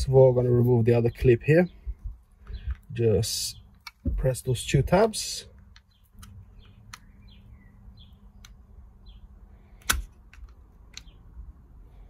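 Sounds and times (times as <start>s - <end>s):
faint bird chirps: 1.0s - 3.8s, 5.9s - 9.8s.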